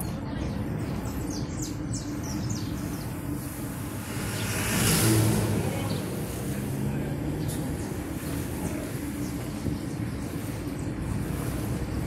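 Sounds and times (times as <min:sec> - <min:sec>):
car road and engine noise: 0:00.0 - 0:12.0
bus passing close by: 0:03.2 - 0:12.0.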